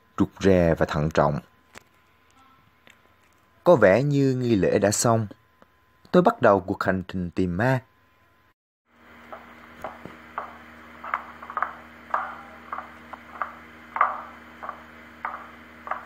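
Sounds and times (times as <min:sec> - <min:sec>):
steady low hum: 0:00.0 - 0:16.0
footsteps on creaking wooden floorboards: 0:09.2 - 0:16.0.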